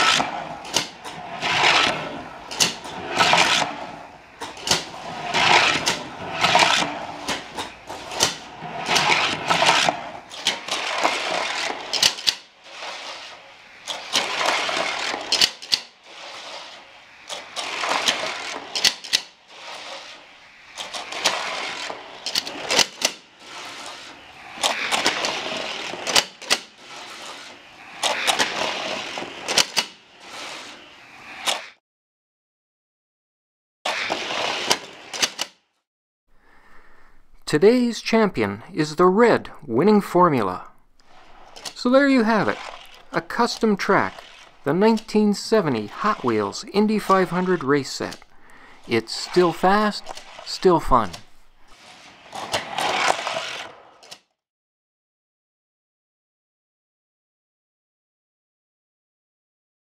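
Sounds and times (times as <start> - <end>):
toy cars rumbling on plastic track: 0.0 - 31.8, 33.9 - 35.6, 41.0 - 54.4
toy cars whirring through booster: 0.0 - 31.8, 33.9 - 35.6, 40.8 - 54.4.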